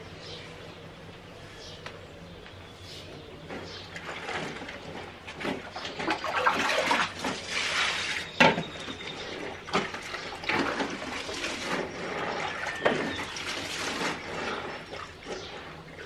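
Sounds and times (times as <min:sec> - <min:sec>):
water running and splashing: 0:04.0 - 0:08.3, 0:09.2 - 0:15.9.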